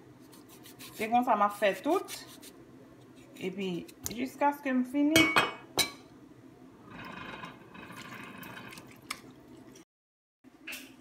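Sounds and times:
wet squishing and dripping: 8.7s - 9.8s.

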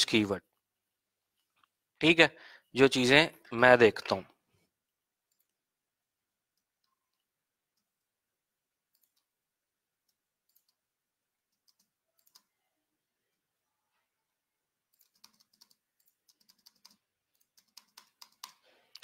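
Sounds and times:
computer keyboard typing: 8.8s - 9.4s, 10.0s - 12.6s, 14.8s - 18.7s.

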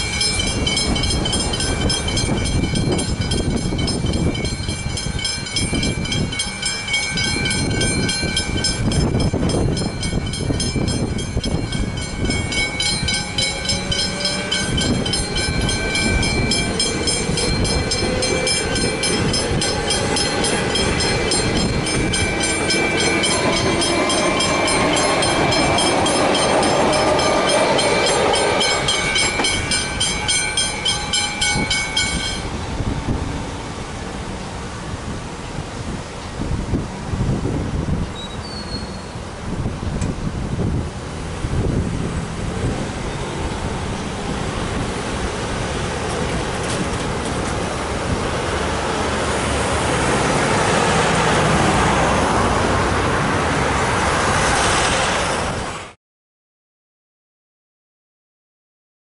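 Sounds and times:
level crossing bells ringing: 0.0s - 32.6s
train wheels rumbling on rails: 0.0s - 56.0s
rising whine: 11.2s - 33.9s.

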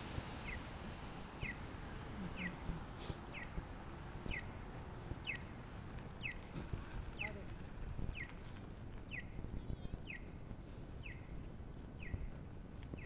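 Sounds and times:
faint street noise: 0.0s - 13.0s.

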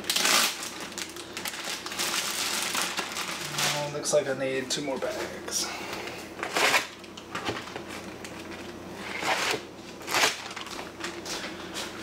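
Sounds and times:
plastic bags crinkling: 0.0s - 4.2s, 9.2s - 11.4s.

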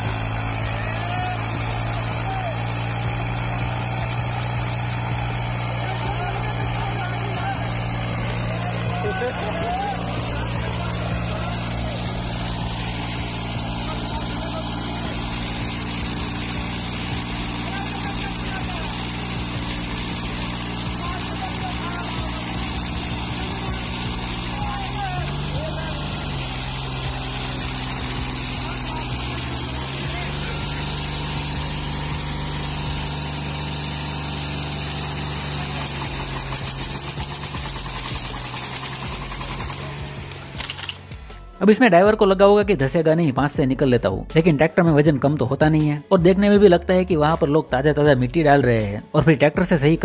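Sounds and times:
diesel engine humming: 0.0s - 50.0s.

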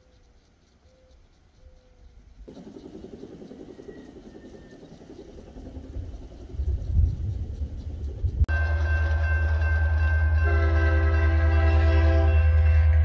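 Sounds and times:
diesel locomotive engine pulsing: 2.4s - 13.0s
heavy low rumble: 5.6s - 8.6s.

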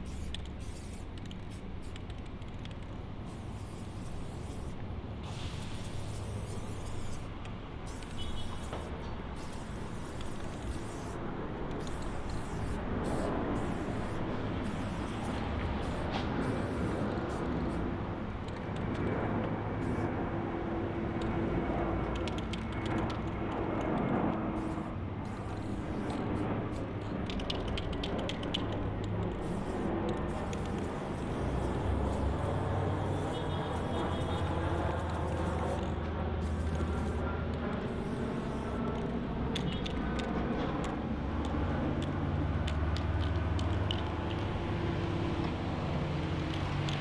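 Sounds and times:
spray can hissing: 0.0s - 17.8s, 24.6s - 28.7s, 29.3s - 37.2s, 37.8s - 40.0s.

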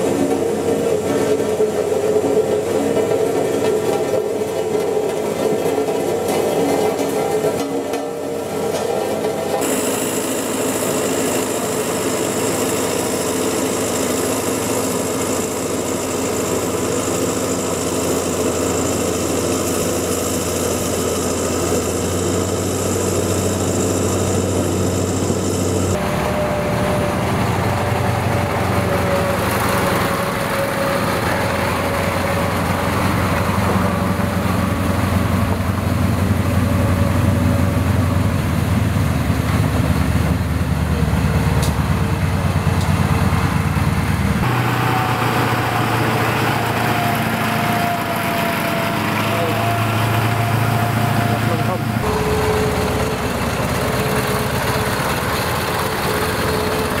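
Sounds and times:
road roller diesel engine: 0.0s - 57.0s
truck diesel engine driving: 0.0s - 57.0s
high whine: 9.5s - 38.3s, 41.6s - 57.0s.

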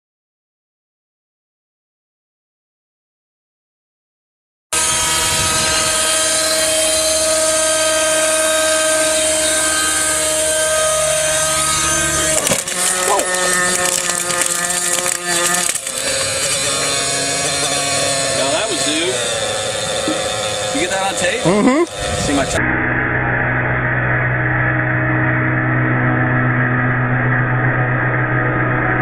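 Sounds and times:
rc helicopter motor and rotor whine: 4.8s - 29.0s
helicopter crash impacts and crunching: 11.4s - 17.0s.

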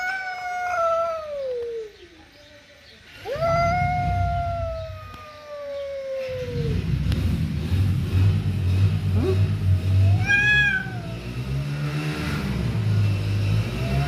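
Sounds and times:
cat growling: 0.0s - 1.6s, 3.2s - 7.0s, 9.1s - 11.6s
cat wavering moan: 0.0s - 1.9s, 3.2s - 6.9s, 10.0s - 11.2s
cat yowling: 0.0s - 1.9s, 3.2s - 6.8s, 10.0s - 11.3s.

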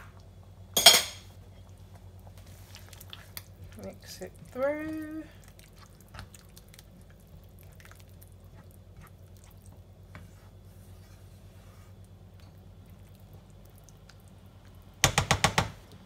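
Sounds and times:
low steady hum: 0.0s - 16.0s
spatula stirring thick sauce: 2.0s - 15.0s
spatula knocking against pan: 15.0s - 15.8s.

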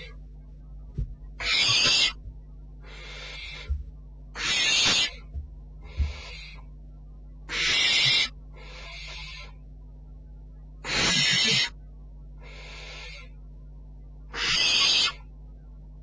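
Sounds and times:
low electrical hum: 0.0s - 16.0s
owl chick rasping hiss calls: 1.4s - 2.2s, 2.9s - 3.7s, 4.4s - 5.3s, 6.0s - 6.6s, 7.5s - 9.6s, 10.8s - 11.8s, 12.4s - 13.3s, 14.3s - 15.3s.

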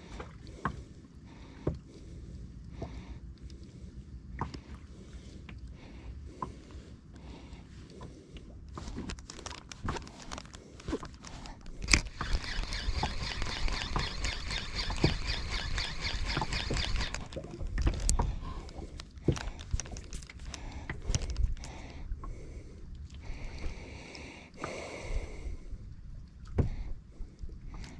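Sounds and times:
low rumble of wind and water: 0.0s - 27.9s
reel click: 9.0s - 21.7s
fishing reel whirring: 9.2s - 21.6s.

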